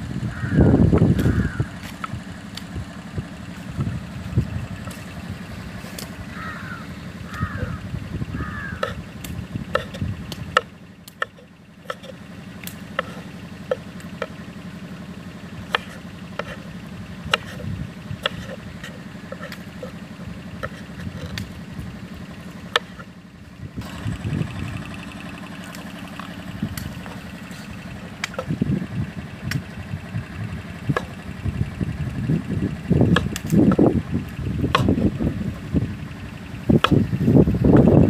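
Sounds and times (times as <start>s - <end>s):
bird calling: 0.2s - 2.5s, 4.8s - 12.2s.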